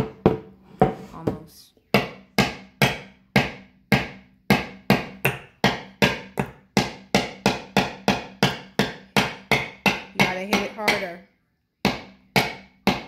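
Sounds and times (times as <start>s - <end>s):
hammer tapping nail into wood: 2.0s - 11.1s, 11.8s - 13.0s.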